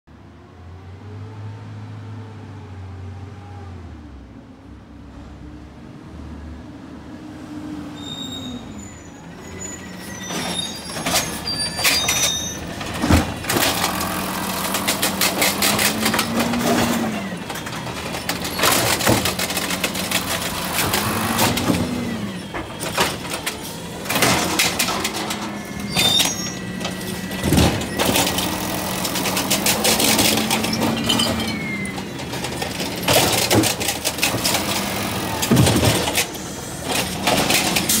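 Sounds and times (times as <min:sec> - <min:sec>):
carts banging and clattering: 0:10.0 - 0:38.0
hydraulic arm lifting: 0:10.1 - 0:38.0
garbage truck engine revving: 0:10.3 - 0:38.0.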